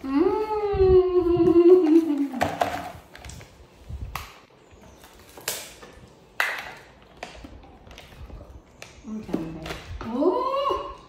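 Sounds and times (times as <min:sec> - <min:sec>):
plastic bottles tapping and knocking: 0:02.2 - 0:03.4.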